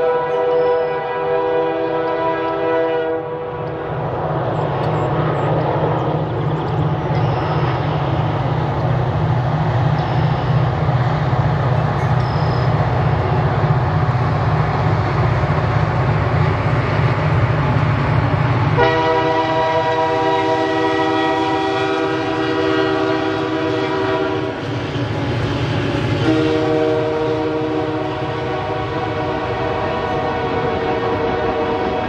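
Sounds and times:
locomotive air horn blasts: 0.0s - 3.6s, 18.8s - 24.6s, 26.2s - 32.0s
train running noise: 0.0s - 32.0s.

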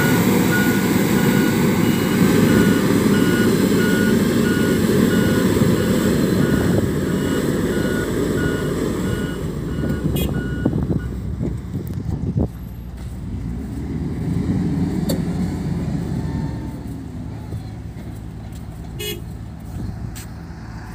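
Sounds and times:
reversing alarm beeping: 0.0s - 11.2s
diesel engine rumble: 0.0s - 20.9s.

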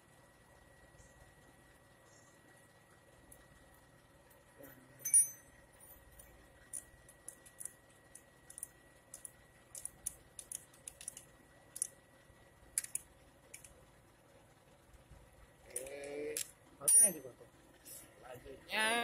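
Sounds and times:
screwdriver clicking on metal: 8.5s - 11.2s, 12.8s - 13.0s.

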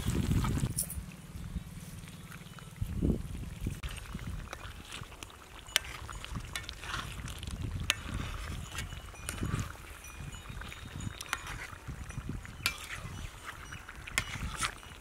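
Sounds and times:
spoon scraping and tapping in a pan: 5.6s - 15.0s.

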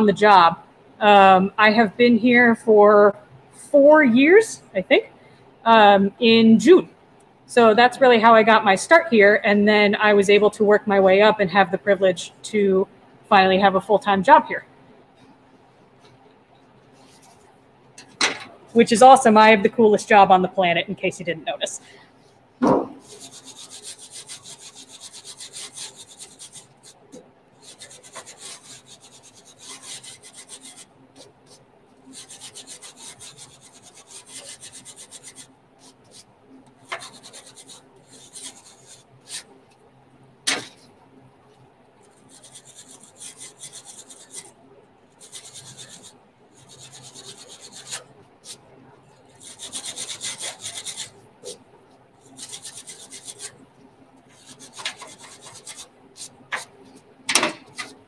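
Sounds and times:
hand tool scraping paint on metal: 27.6s - 30.8s, 54.4s - 56.7s.

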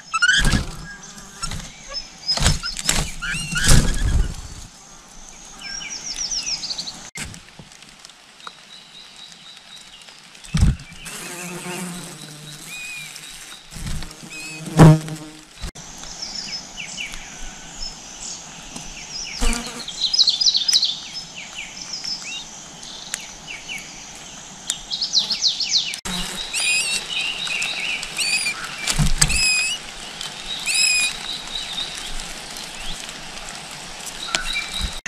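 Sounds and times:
nestlings chirping: 0.0s - 4.7s, 10.5s - 15.4s, 24.7s - 33.1s.

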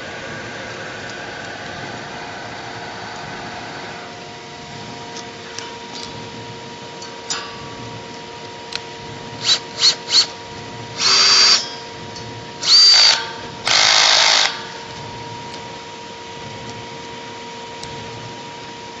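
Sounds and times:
power drill whirring: 9.4s - 10.4s, 11.0s - 11.7s, 12.6s - 14.8s.

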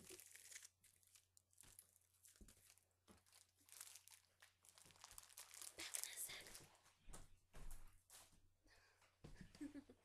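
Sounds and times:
plastic shrink-wrap crinkling: 0.0s - 6.8s.

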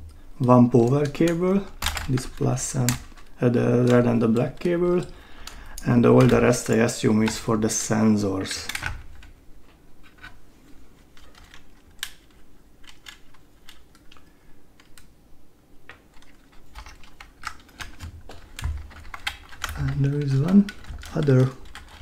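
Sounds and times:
small plastic parts clicking: 0.8s - 7.5s, 11.2s - 15.1s, 15.9s - 22.0s.

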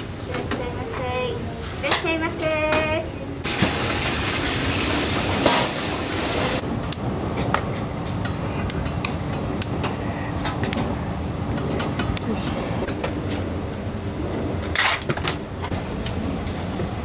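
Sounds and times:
loud steady hiss: 3.4s - 6.6s.

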